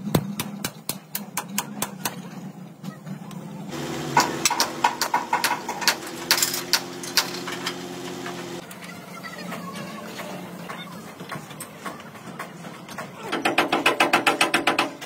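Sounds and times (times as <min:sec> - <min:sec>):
engine running: 0:03.7 - 0:08.7
hammer striking steel: 0:04.1 - 0:07.7.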